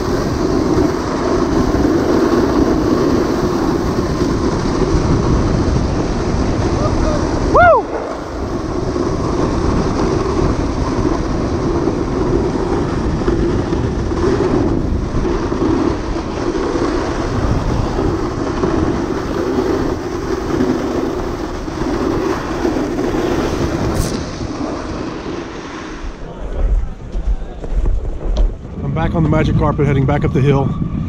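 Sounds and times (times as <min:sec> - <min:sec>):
sled scraping over snow: 0:00.0 - 0:30.0.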